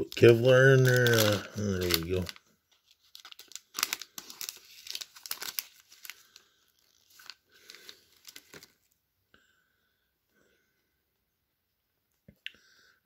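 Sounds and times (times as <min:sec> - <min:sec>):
foil wrapper crinkling and tearing: 0:00.0 - 0:08.9.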